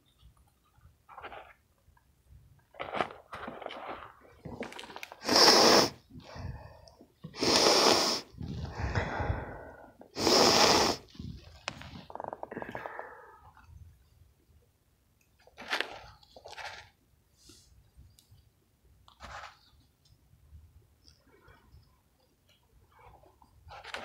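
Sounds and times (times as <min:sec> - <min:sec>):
person sniffing hard: 0:05.2 - 0:06.6, 0:07.3 - 0:11.1.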